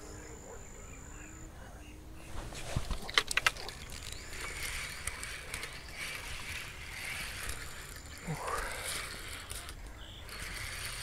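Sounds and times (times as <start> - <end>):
fishing reel whirring: 3.4 - 11.0.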